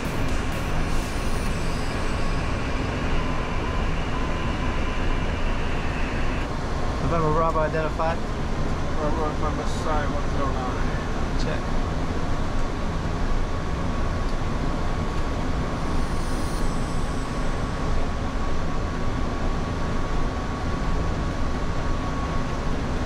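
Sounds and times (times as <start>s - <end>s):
faint steady high tone: 0.0s - 6.5s, 15.6s - 18.8s
rush of airflow and air conditioning: 0.0s - 23.0s.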